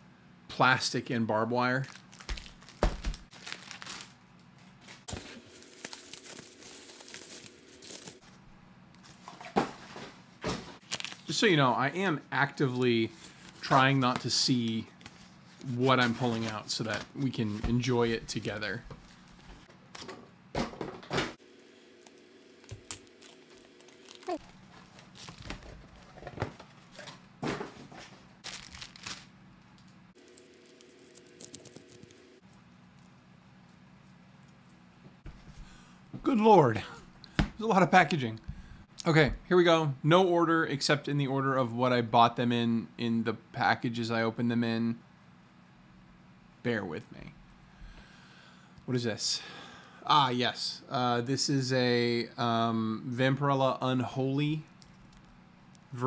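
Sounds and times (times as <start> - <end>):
plastic packaging crinkling: 1.8 - 8.2, 10.8 - 11.4, 22.1 - 26.2, 28.4 - 29.3, 30.2 - 32.4.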